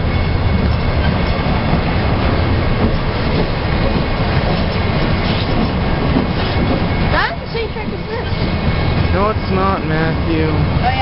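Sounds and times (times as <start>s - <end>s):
steel train wheels on rails: 0.0s - 11.0s.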